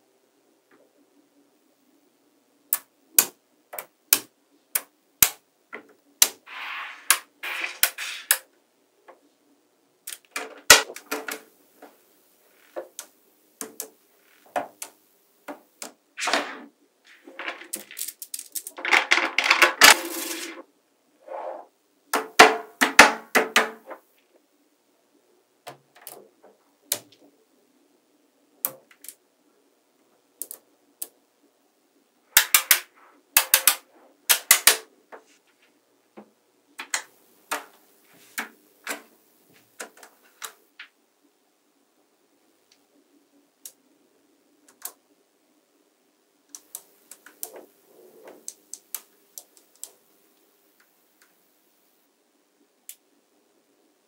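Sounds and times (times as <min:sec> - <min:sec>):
magnetic balls snapping together: 0:02.7 - 0:05.4, 0:06.2 - 0:06.4, 0:10.1 - 0:11.5, 0:12.6 - 0:20.6, 0:30.4 - 0:31.1, 0:32.4 - 0:34.9, 0:36.8 - 0:37.8
balls rattling: 0:16.2 - 0:20.6.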